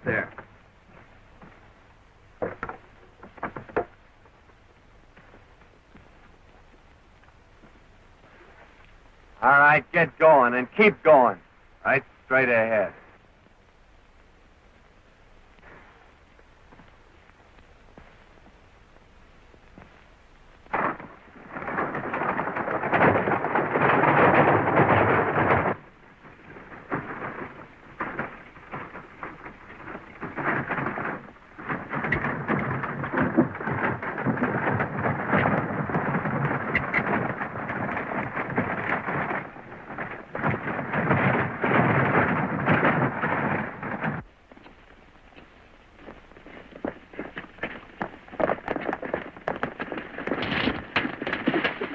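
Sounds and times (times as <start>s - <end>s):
wagon wheels rattling: 0.0s - 13.2s, 20.6s - 51.9s
horse hoofbeats galloping: 0.0s - 51.9s
sharp crack: 20.6s - 44.2s.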